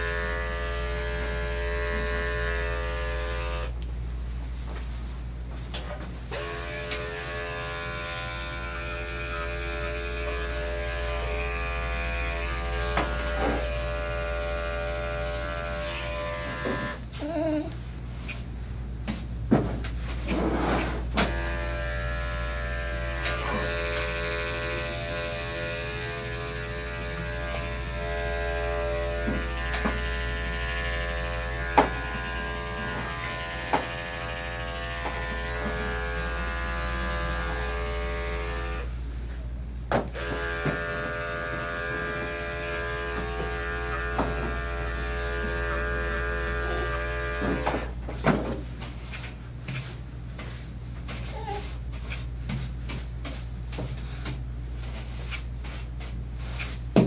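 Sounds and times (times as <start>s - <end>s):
electric clippers humming: 0.0s - 3.8s, 6.3s - 17.1s, 21.2s - 39.0s, 40.0s - 48.0s.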